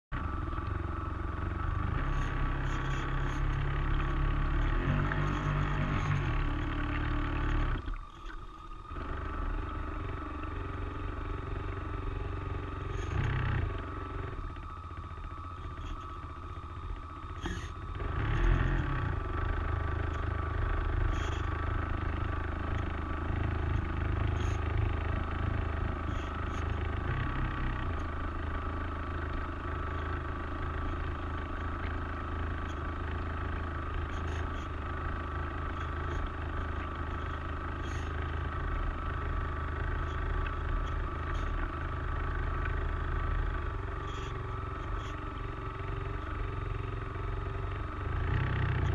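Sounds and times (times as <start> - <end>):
electric boat motor humming: 0.1 - 48.9.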